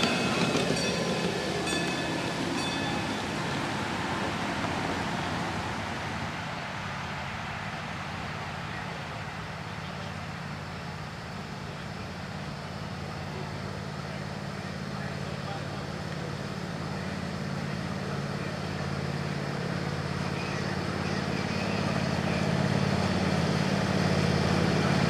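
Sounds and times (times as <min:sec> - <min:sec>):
train wheels clicking over rail joints: 0:00.0 - 0:04.8
locomotive motor humming: 0:00.0 - 0:25.0.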